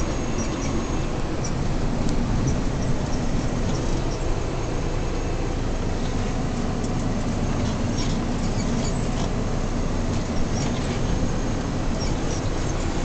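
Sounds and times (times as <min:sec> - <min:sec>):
short high squeaks: 0:00.0 - 0:01.6, 0:07.6 - 0:09.5, 0:10.2 - 0:13.0
engine and road noise in van: 0:00.0 - 0:13.0.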